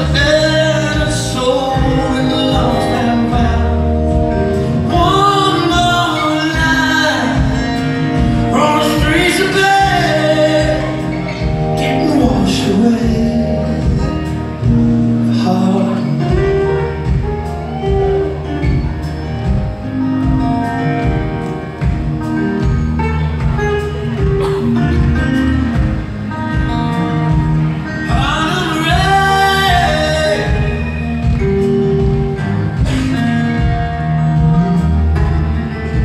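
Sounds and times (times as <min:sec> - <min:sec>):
person singing: 0:00.0 - 0:18.8, 0:26.6 - 0:31.4
rock band playing live: 0:00.0 - 0:36.0.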